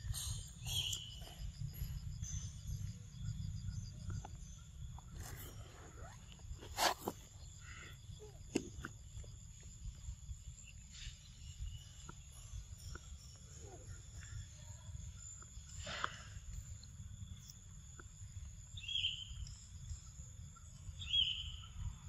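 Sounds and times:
insects chirring: 0.0 - 22.0.

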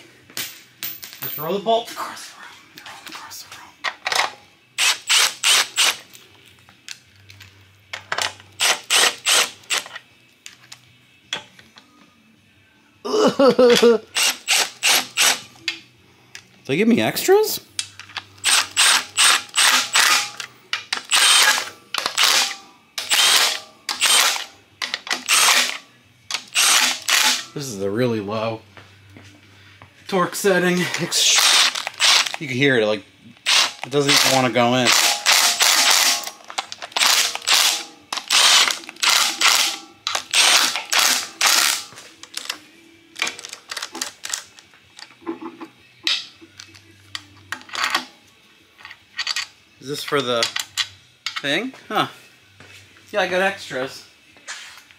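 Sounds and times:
impact wrench hammering: 21.0 - 24.5, 33.5 - 36.4, 37.0 - 41.9.

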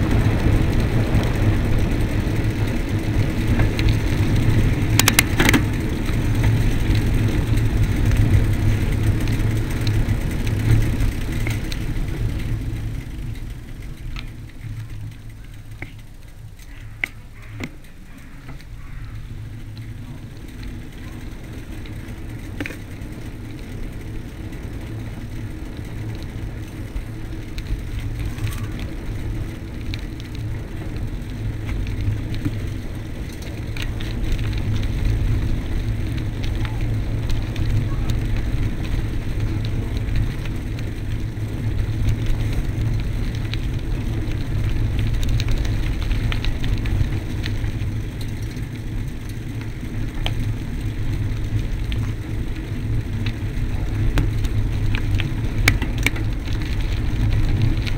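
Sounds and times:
bike clicks and knocks: 0.0 - 57.9
tyres rumbling on dirt: 0.0 - 57.9.

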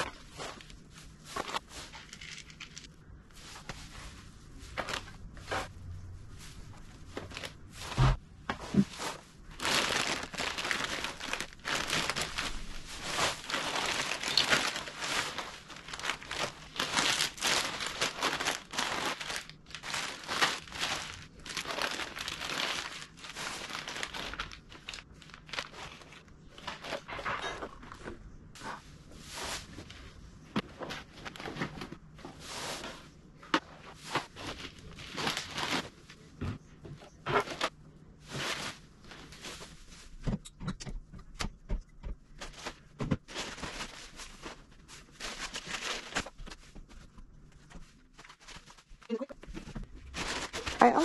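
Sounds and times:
plastic packaging crinkling: 7.0 - 8.0, 9.0 - 27.2, 42.5 - 46.6, 50.0 - 51.0.

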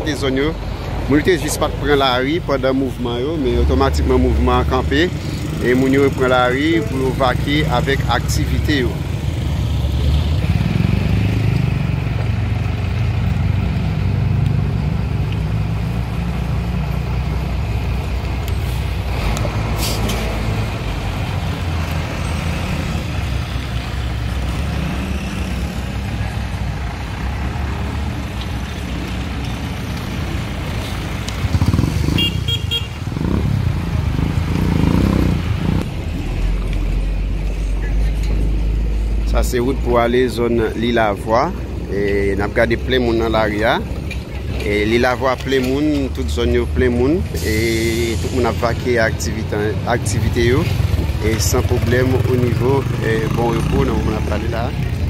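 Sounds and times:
pickup truck passing: 0.0 - 55.0
vehicle engines passing: 0.0 - 55.0
motorcycle passing: 5.2 - 18.5, 19.1 - 36.8, 50.3 - 55.0
car horn toot: 32.1 - 33.0.

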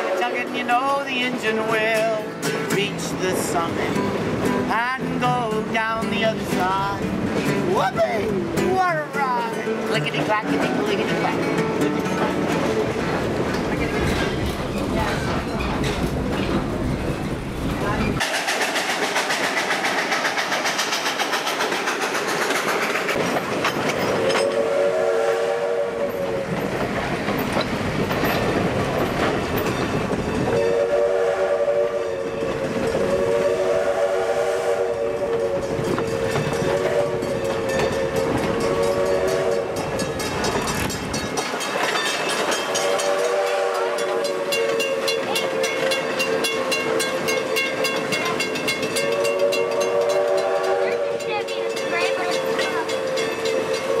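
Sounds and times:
steam locomotive whistle: 0.0 - 0.8, 24.1 - 26.7, 30.4 - 40.0, 42.5 - 54.0
train wheels clacking on rails: 9.9 - 24.8, 26.0 - 31.0, 34.9 - 54.0.

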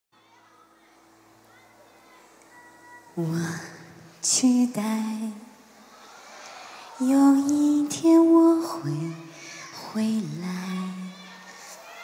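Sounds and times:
woman singing slow ballad: 3.1 - 5.6, 7.0 - 11.2.

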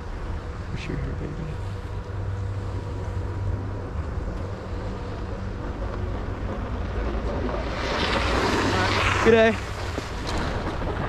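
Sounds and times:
wind rumble on microphone: 0.0 - 11.0
skis gliding over snow: 2.8 - 11.0.

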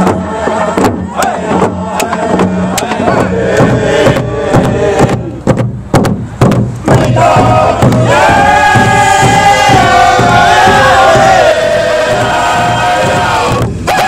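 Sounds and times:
group chanting: 0.0 - 5.4, 6.9 - 14.0
hand drums beating: 0.0 - 14.0.

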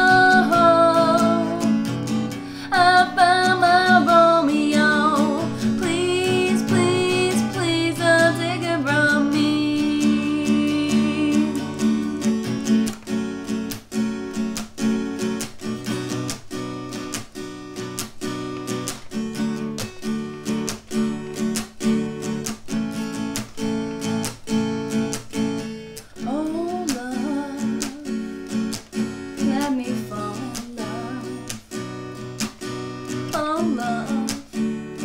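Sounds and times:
person singing: 0.0 - 12.2, 26.2 - 28.3, 29.4 - 31.6, 33.3 - 34.6
strummed acoustic guitar: 0.0 - 35.0.

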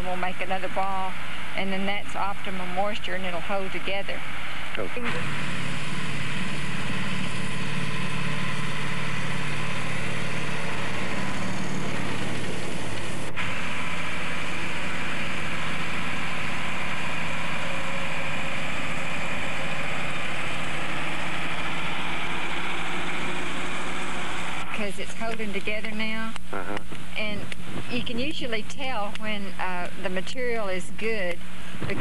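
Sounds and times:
heavy truck engines running: 4.3 - 26.1
tanker truck spraying: 5.0 - 25.0.

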